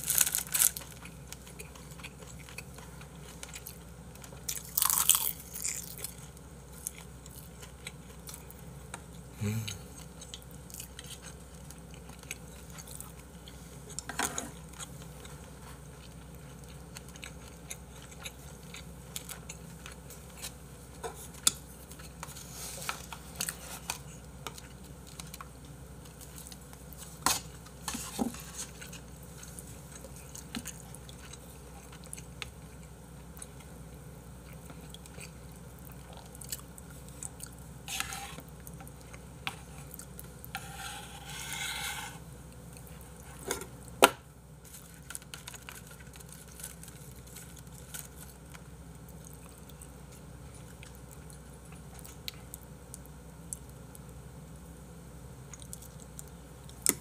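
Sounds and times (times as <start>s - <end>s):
chewing: 0.5s - 20.6s, 28.4s - 33.7s, 34.4s - 40.6s, 55.5s - 57.0s.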